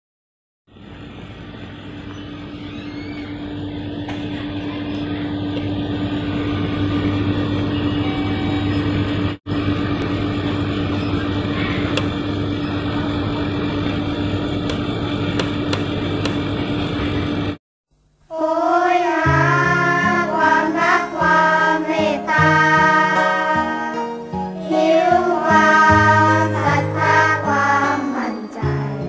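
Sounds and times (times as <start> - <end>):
machine hum: 0.7 - 29.0
music with singing: 18.4 - 29.0.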